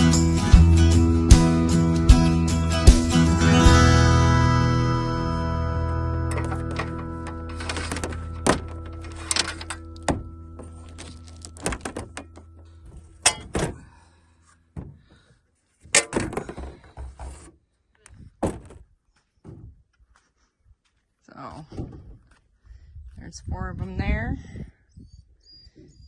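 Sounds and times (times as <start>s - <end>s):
background music: 0.0s - 13.4s.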